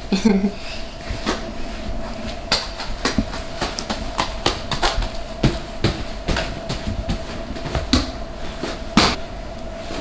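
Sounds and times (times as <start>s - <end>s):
faint steady hum: 0.0s - 10.0s
toddler footsteps on foam mats: 2.5s - 9.2s.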